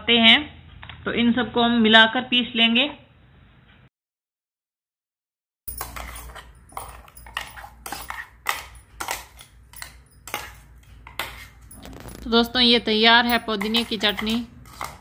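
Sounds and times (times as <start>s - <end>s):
spoon scraping steel jar: 5.7s - 15.0s.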